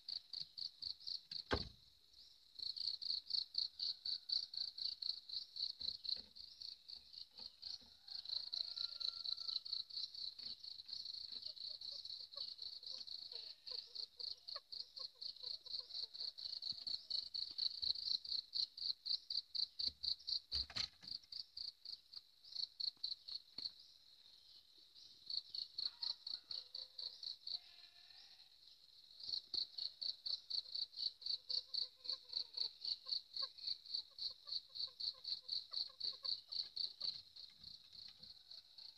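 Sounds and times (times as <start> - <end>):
insect chirping: 0.0 - 38.9
sharp knock: 1.5 - 1.7.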